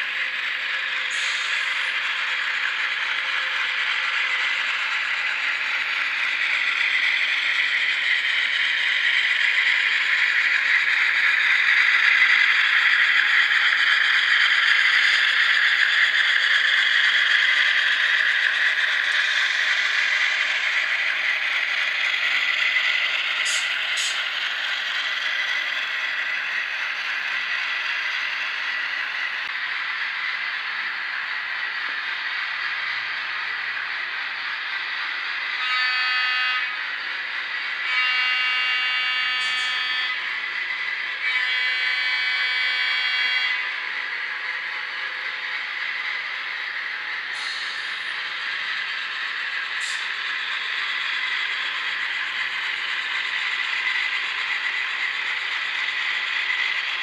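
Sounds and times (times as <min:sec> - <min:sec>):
wheels rattling on track: 0:00.0 - 0:35.2
model train motor whirring: 0:00.0 - 0:57.0.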